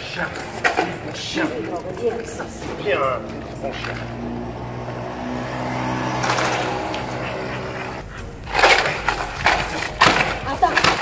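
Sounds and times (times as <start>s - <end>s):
dog barking: 6.2s - 9.0s.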